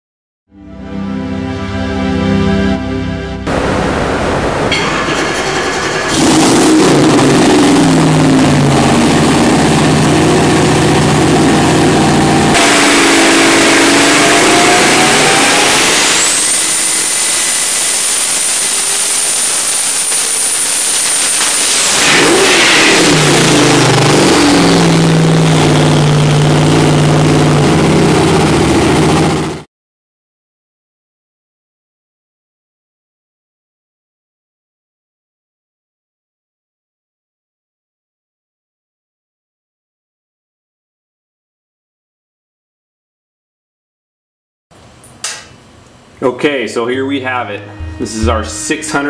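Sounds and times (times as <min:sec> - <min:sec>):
engine full-throttle pull: 0:04.7 - 0:29.6
turbo whistle: 0:12.6 - 0:23.0, 0:47.6 - 0:49.0.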